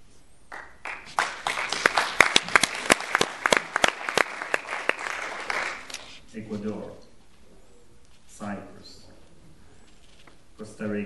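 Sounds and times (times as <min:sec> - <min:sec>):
audience applauding: 0:00.5 - 0:06.2.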